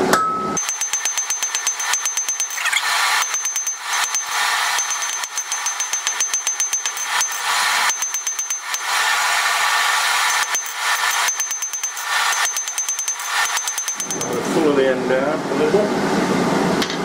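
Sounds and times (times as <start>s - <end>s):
hammer striking steel on anvil: 10.3s - 14.6s.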